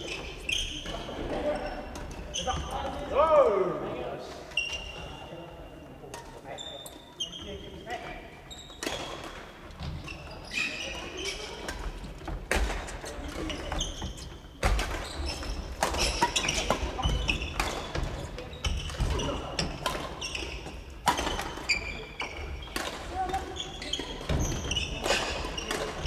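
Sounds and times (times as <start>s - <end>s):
sneakers squeaking: 0.0s - 3.6s, 4.3s - 26.0s
rackets smacking shuttlecocks: 11.5s - 26.0s.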